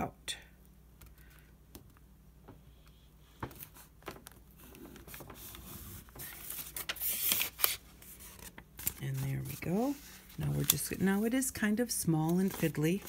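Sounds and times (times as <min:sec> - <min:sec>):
low steady hum: 0:00.0 - 0:13.0
paper rustling and creasing: 0:03.2 - 0:13.0.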